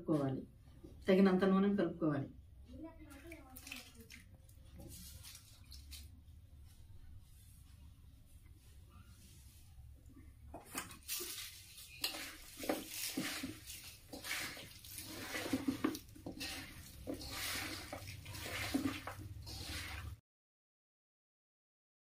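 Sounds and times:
wet scraping stirring strokes: 2.6s - 20.2s.

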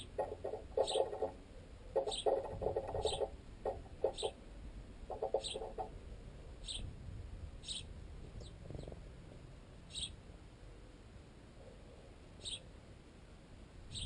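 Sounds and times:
sparrow chirps: 0.0s - 1.3s, 2.0s - 4.4s, 5.1s - 5.9s, 6.6s - 6.9s, 7.6s - 9.0s, 9.9s - 10.2s, 12.4s - 12.7s
sparrows pecking knocks: 0.0s - 4.4s, 5.1s - 6.0s.

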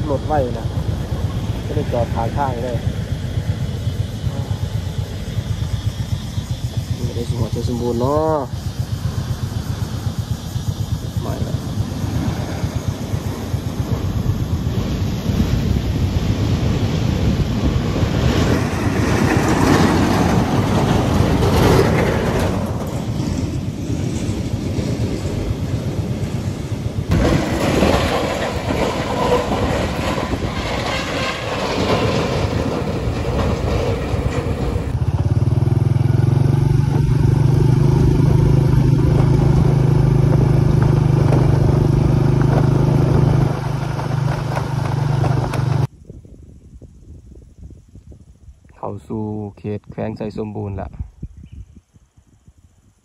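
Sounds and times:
motorcycle engine running: 0.0s - 27.6s, 32.6s - 46.0s
road rumble: 0.0s - 48.8s
loud wind: 0.0s - 53.0s
clatter: 19.1s - 24.4s, 27.1s - 35.1s, 38.9s - 45.9s.

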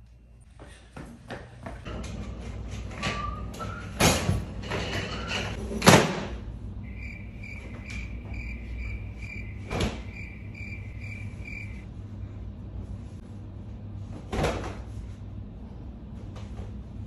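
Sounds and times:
crickets chirping: 6.8s - 11.8s.

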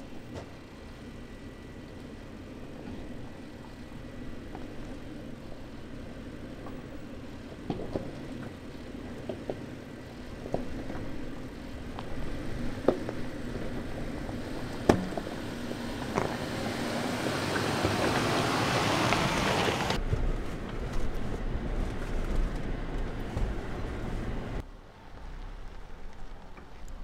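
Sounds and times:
vehicle engine running low: 0.0s - 27.0s
rocks cracking and knocking: 10.3s - 16.7s
tyres crunching over loose stone: 10.4s - 16.7s.

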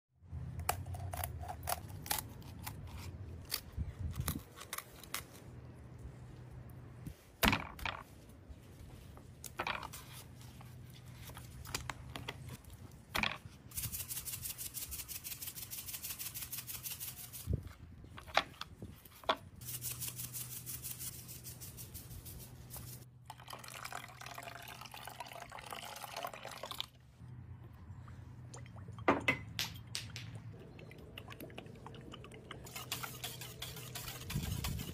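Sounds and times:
seasoning shaker rattling: 13.7s - 17.5s, 19.6s - 23.0s, 32.7s - 34.9s
low steady hum: 21.8s - 34.8s
liquid sounds: 23.2s - 34.9s
poultry shears cutting chicken: 32.7s - 34.9s.

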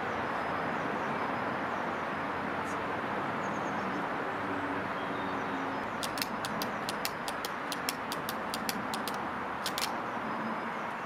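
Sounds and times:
outdoor background noise: 0.0s - 11.0s
rapid sharp ticks: 6.0s - 10.0s.

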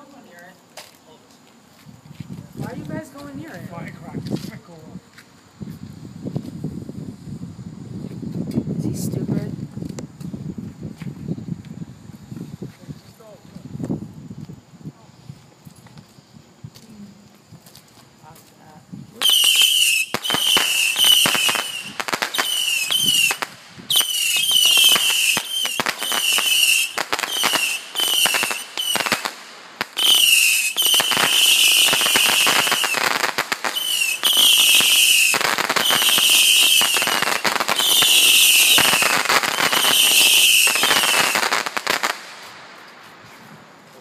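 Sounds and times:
firework crackling pops: 0.0s - 6.6s, 16.7s - 43.3s
whistling firework shots: 19.2s - 42.7s.

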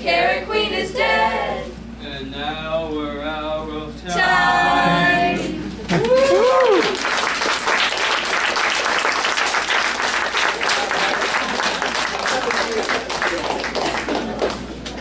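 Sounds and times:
whoops: 5.9s - 7.0s
audience applause: 5.9s - 15.0s.

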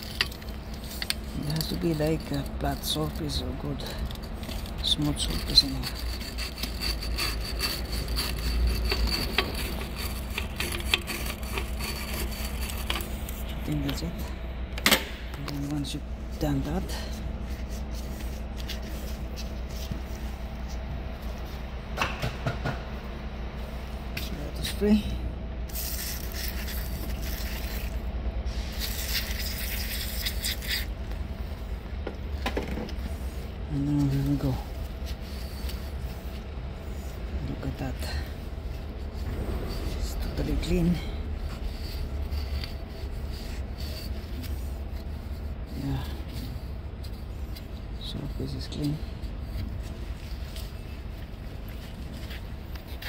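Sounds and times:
hand scraping metal gasket face: 0.0s - 14.3s, 28.7s - 53.0s
steady low hum: 0.0s - 53.0s.

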